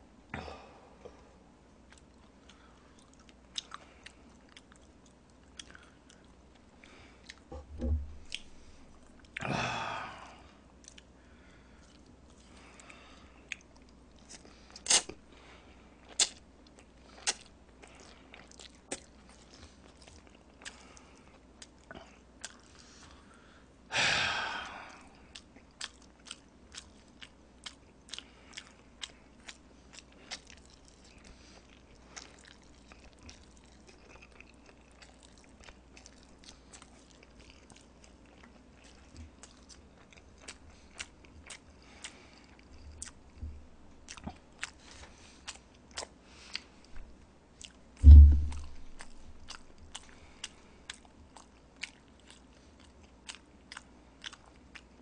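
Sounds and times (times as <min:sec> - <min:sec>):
chewing noodles with mouth smacks: 0:16.0 - 0:23.2, 0:25.2 - 0:47.8, 0:48.5 - 0:55.0.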